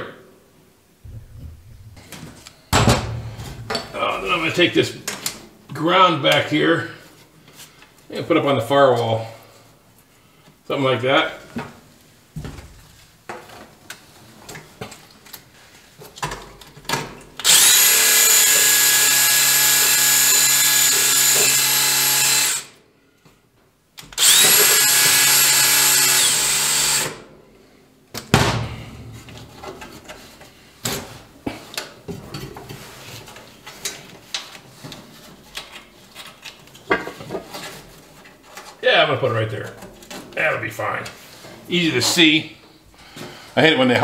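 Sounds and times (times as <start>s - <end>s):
cordless drill into sheet metal: 17.4s - 22.8s, 24.0s - 27.2s.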